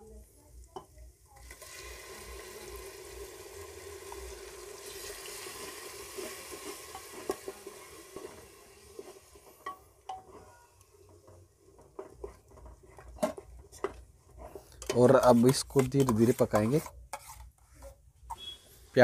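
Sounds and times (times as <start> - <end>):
paste sizzling in hot oil: 1.3 - 13.6, 14.2 - 17.5
spatula knocking and scraping pot: 9.0 - 18.6.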